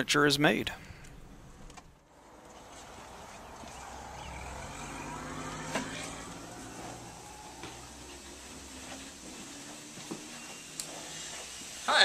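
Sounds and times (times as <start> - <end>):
steady mechanical hum: 0.4 - 12.0
faint rising whine: 1.0 - 12.0.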